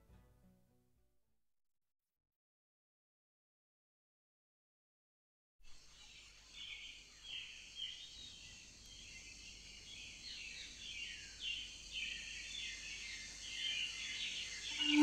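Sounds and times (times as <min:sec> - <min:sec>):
steady high hiss: 0:05.7 - 0:15.0
birds chirping: 0:05.8 - 0:15.0.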